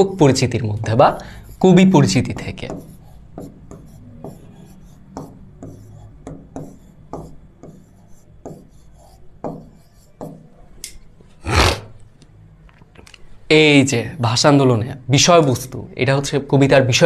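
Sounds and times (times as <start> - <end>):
marker pen writing on a board: 1.2 - 10.7.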